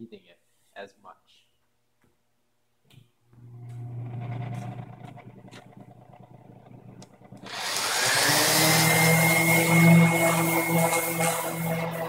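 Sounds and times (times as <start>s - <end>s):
palm sander whining: 3.7s - 12.0s.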